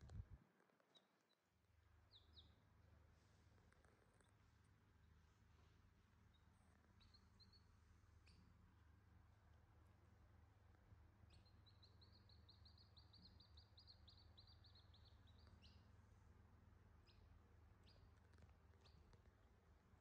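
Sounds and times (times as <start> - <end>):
low steady hum: 0.0 - 20.0
chicks peeping: 6.3 - 8.4, 11.2 - 15.9, 17.0 - 19.2.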